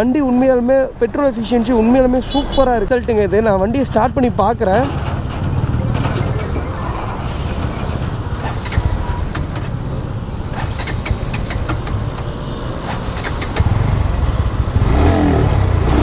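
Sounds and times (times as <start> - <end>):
motorcycle engine starting: 7.5 - 12.1, 12.8 - 16.0.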